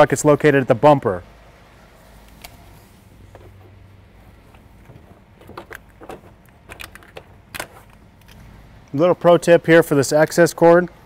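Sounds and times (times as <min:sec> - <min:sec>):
steady low hum: 0:00.1 - 0:11.0.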